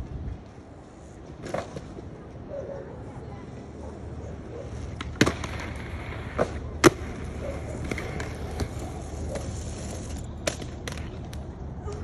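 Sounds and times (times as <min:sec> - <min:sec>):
skateboard wheels rumbling: 0:00.0 - 0:12.0
skateboard clacks: 0:04.7 - 0:12.0.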